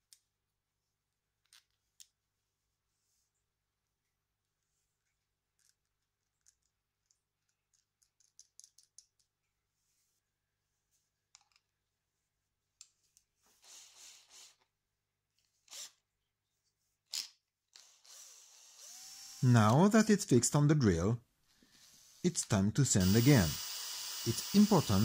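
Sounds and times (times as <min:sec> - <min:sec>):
soft rustles and scrapes: 0:09.6 - 0:13.6.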